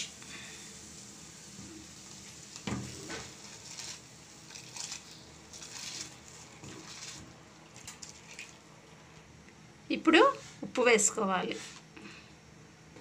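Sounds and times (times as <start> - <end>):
boiling water hissing: 0.0 - 13.0
rice splashing into water: 2.2 - 8.6.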